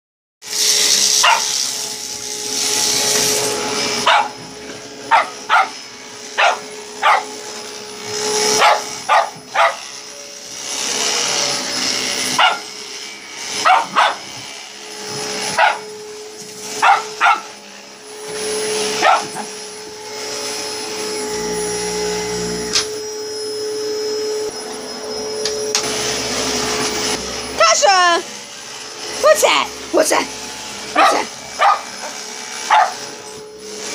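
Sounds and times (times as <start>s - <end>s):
vacuum cleaner droning: 0.4s - 33.9s
dog barking: 1.2s - 1.5s, 4.0s - 4.4s, 5.1s - 5.8s, 6.4s - 7.4s, 8.6s - 9.9s, 12.4s - 12.7s, 13.6s - 14.3s, 15.5s - 15.9s, 16.8s - 17.6s, 19.0s - 19.5s, 30.9s - 33.1s.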